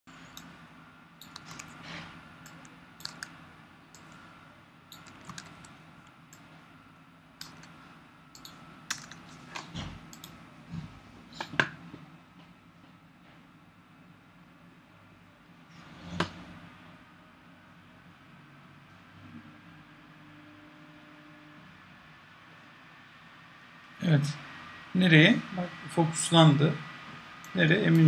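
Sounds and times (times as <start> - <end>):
keyboard typing clicks: 1.2 - 1.8, 2.4 - 3.4, 4.9 - 5.7, 7.4 - 7.7, 8.3 - 9.2, 10.1 - 10.4.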